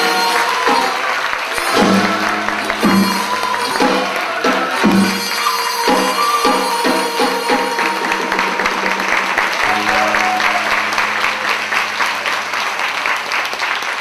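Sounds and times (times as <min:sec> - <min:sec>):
drum strokes: 0:00.0 - 0:13.0
audience applauding: 0:00.0 - 0:14.0
low held note: 0:05.5 - 0:13.6.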